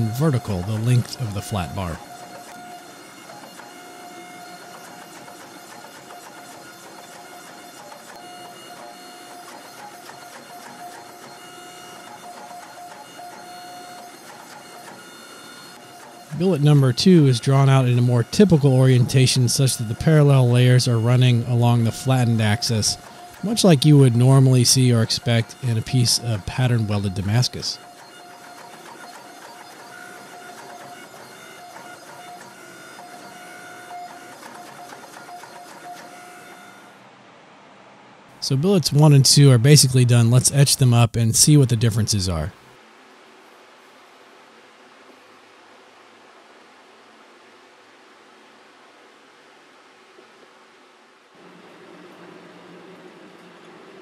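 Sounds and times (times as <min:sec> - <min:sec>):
forging press mechanical hum: 0:00.0 - 0:36.8
machine whine: 0:00.0 - 0:37.2, 0:51.4 - 0:54.0.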